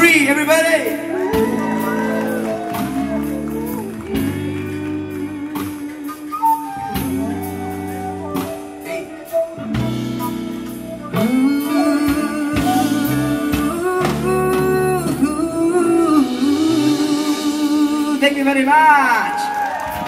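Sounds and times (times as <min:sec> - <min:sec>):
live rock band playing: 0:00.0 - 0:20.0
flute: 0:01.0 - 0:15.3
man singing into microphone: 0:02.9 - 0:09.5, 0:11.1 - 0:19.4.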